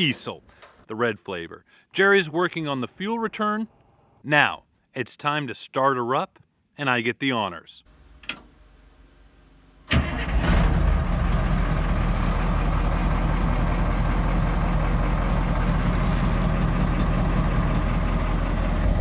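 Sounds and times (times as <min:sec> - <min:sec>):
diesel engine starting and running: 0:07.9 - 0:19.0.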